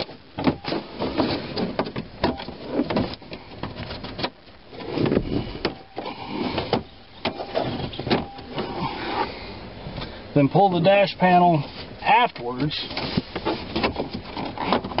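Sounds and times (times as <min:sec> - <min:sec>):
plastic rubbing: 0:12.8 - 0:15.0.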